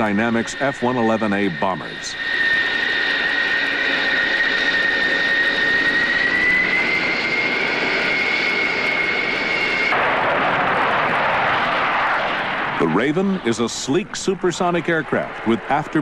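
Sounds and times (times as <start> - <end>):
broad rushing jet noise: 0.0 - 16.0
jet engines whining: 0.0 - 16.0.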